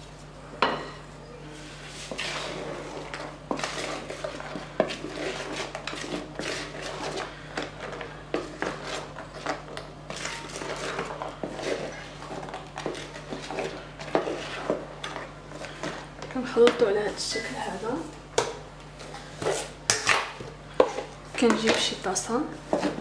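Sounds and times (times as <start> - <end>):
spatula scraping a bowl: 1.6 - 16.1.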